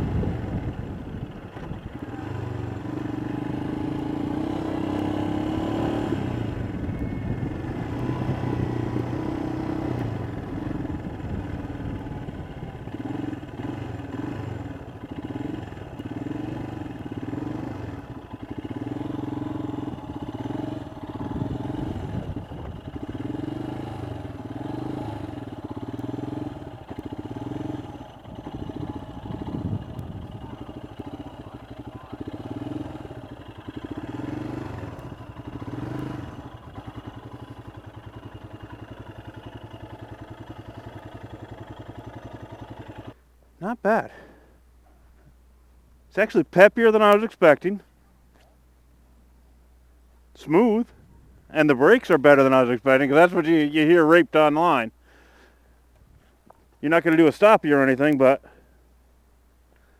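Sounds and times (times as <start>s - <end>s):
motorcycle engine running: 0.0s - 43.2s.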